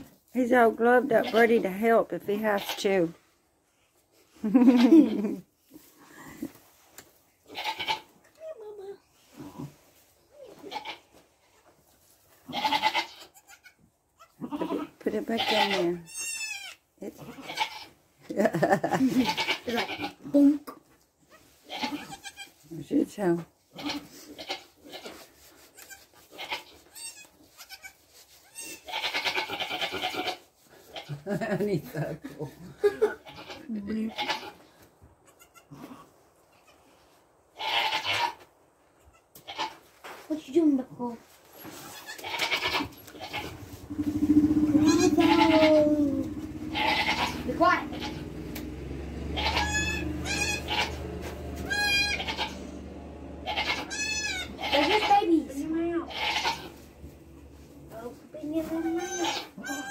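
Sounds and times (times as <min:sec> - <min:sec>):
goat kids bleating: 0:02.4 - 0:02.9, 0:07.4 - 0:08.2, 0:10.5 - 0:11.2, 0:12.5 - 0:18.0, 0:19.1 - 0:20.3, 0:21.3 - 0:22.6, 0:23.7 - 0:31.2, 0:33.0 - 0:34.6, 0:35.2 - 0:36.9, 0:37.6 - 0:38.4, 0:39.0 - 0:39.8, 0:41.6 - 0:57.1, 0:58.6 - 0:59.9
rustling in straw: 0:21.2 - 0:31.3, 0:39.6 - 0:48.2, 0:53.8 - 0:59.9.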